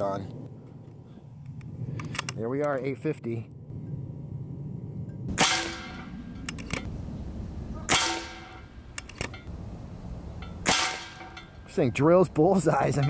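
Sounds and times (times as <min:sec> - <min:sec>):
air rifle shots: 0:05.3 - 0:06.9, 0:07.9 - 0:09.5, 0:10.6 - 0:11.4.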